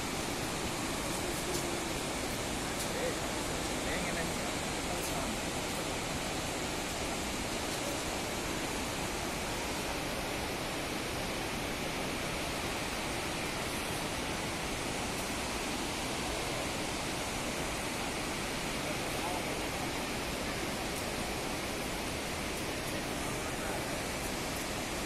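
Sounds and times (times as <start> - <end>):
river and waterfall rushing: 0.0 - 25.0.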